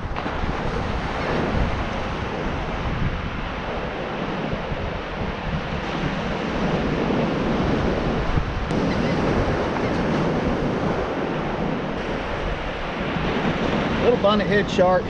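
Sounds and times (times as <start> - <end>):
small surf breaking: 0.0 - 15.0
wind buffeting microphone: 0.0 - 15.0.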